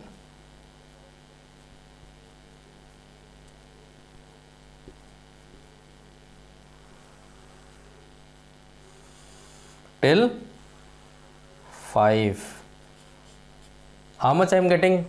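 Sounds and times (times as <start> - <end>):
electrical mains hum: 0.0 - 15.0
faint hiss: 4.8 - 15.0.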